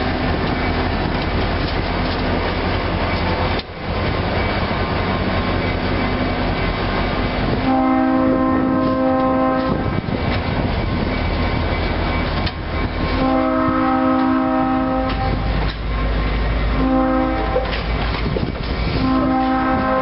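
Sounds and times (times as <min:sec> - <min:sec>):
wheels clicking over rail joints: 0:00.0 - 0:07.6, 0:08.7 - 0:20.0
train coaches rumbling past: 0:00.0 - 0:20.0
locomotive air horn blasts: 0:07.6 - 0:09.9, 0:13.2 - 0:15.5, 0:16.8 - 0:17.8, 0:19.0 - 0:20.0.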